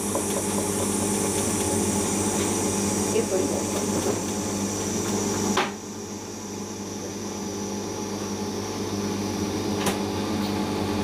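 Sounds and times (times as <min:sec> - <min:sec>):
washing machine drum spinning: 0:00.0 - 0:06.2.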